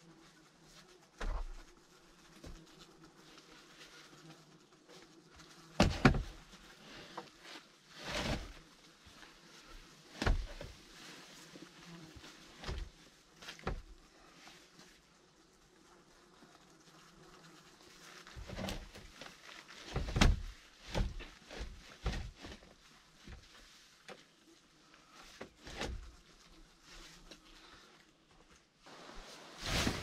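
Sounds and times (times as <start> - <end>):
scraping rustle: 0.0 - 30.0
wooden logs thudding: 5.8 - 6.4, 10.2 - 10.7, 12.6 - 12.9, 19.9 - 22.6.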